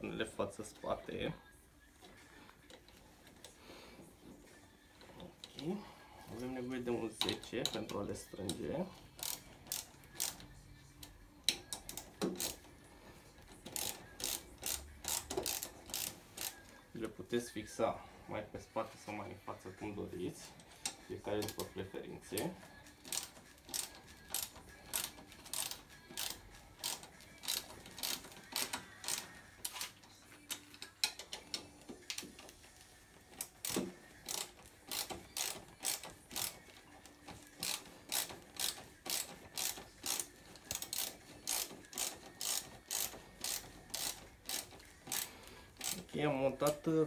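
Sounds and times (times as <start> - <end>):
ratchet wrench clicking: 9.2 - 12.7, 13.6 - 16.7, 22.4 - 32.7, 33.3 - 46.8.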